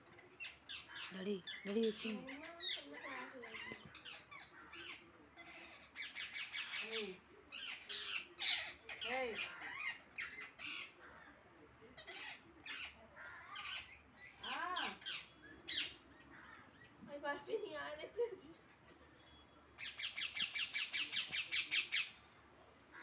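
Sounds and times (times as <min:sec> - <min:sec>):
parakeets squawking: 0:00.4 - 0:11.0, 0:12.0 - 0:16.9.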